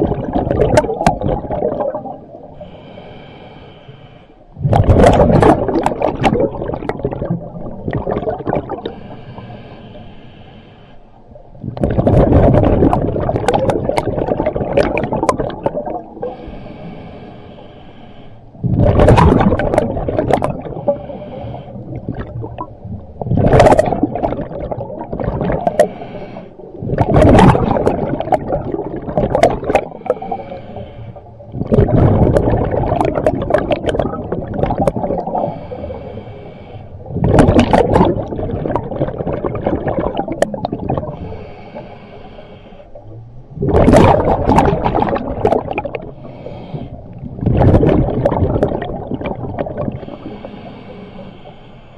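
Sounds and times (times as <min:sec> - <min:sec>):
exhaled bubbles underwater: 0:00.0 - 0:03.0, 0:04.5 - 0:09.5, 0:11.4 - 0:16.9, 0:18.6 - 0:36.3, 0:36.9 - 0:51.4
diver inhaling through regulator: 0:02.4 - 0:04.5, 0:08.0 - 0:11.2, 0:12.4 - 0:18.8, 0:20.0 - 0:23.2, 0:25.5 - 0:29.0, 0:29.6 - 0:32.4, 0:33.0 - 0:37.2, 0:40.8 - 0:43.1, 0:45.0 - 0:47.4, 0:48.0 - 0:51.9.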